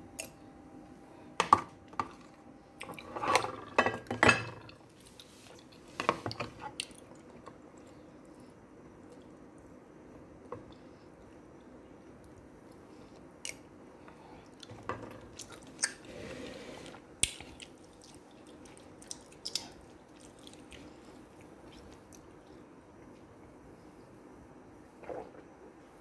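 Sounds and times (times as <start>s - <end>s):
person chewing food: 14.4s - 16.1s, 17.2s - 22.6s.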